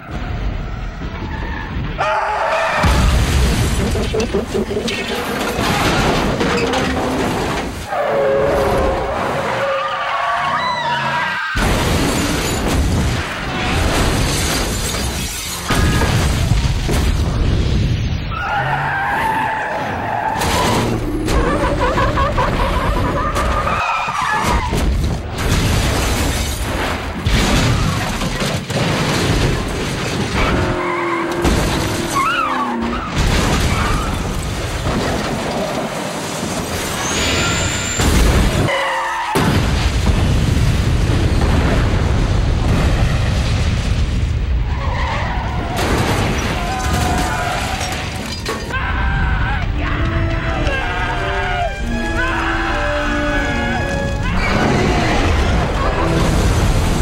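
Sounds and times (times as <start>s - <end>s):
crashes with breaking glass: 11.6s - 17.2s
tyre squeal: 37.0s - 38.0s
background music: 49.3s - 56.4s.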